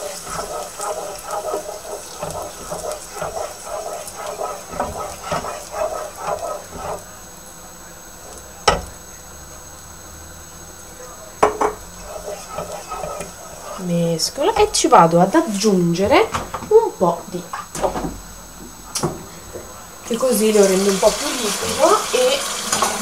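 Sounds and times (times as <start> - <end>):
wooden spoon scraping a pot: 0.0 - 7.2, 11.6 - 14.8.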